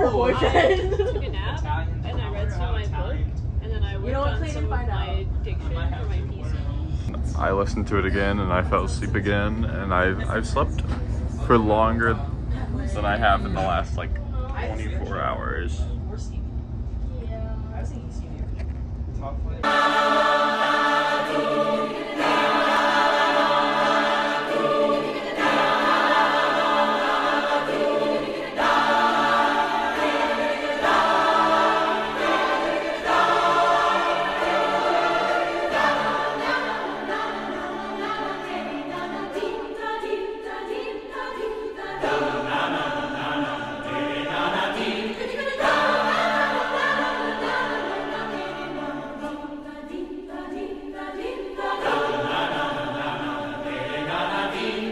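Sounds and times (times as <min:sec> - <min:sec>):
choir singing held chords: 0:00.0 - 0:01.2, 0:19.6 - 0:54.9.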